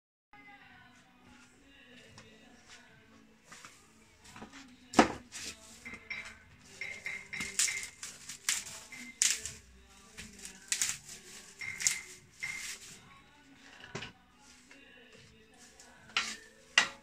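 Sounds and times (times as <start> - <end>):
broom straw rustling: 6.7 - 13.0.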